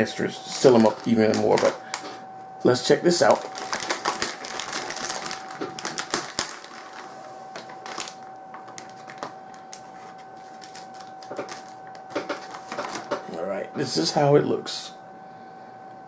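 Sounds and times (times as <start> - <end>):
plastic package crinkling: 0.5 - 2.1, 2.8 - 13.2.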